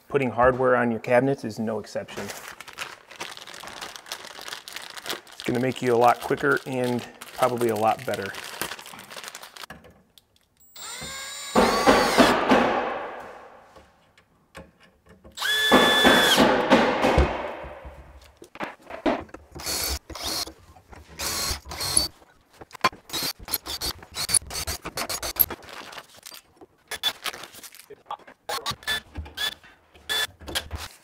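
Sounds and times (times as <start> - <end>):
cordless drill running: 10.6 - 12.3, 15.4 - 16.4, 19.6 - 20.5, 21.2 - 22.1, 28.8 - 30.3.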